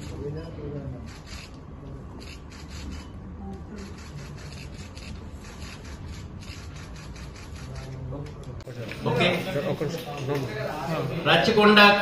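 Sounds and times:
faint murmuring voices: 0.0s - 6.6s.

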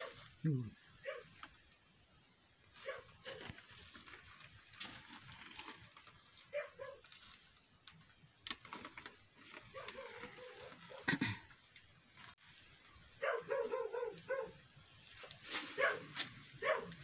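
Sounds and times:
dog yelping: 1.0s - 1.3s, 2.8s - 3.4s, 6.5s - 7.0s, 9.7s - 11.1s, 13.2s - 14.6s, 15.8s - 17.0s.

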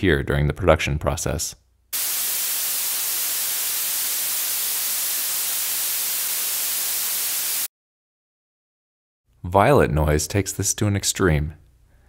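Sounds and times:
blue noise: 2.0s - 7.7s.

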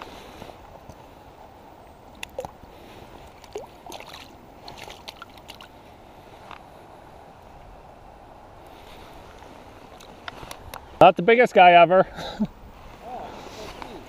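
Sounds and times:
stream water running: 0.0s - 11.0s
small splashes in water: 3.2s - 5.7s.

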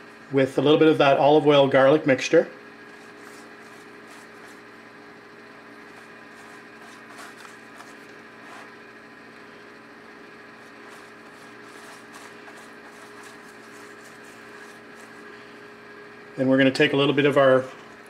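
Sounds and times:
kitchen hum: 0.0s - 18.0s
pastry brush swishing: 2.9s - 4.7s, 5.9s - 8.8s, 10.6s - 15.5s.

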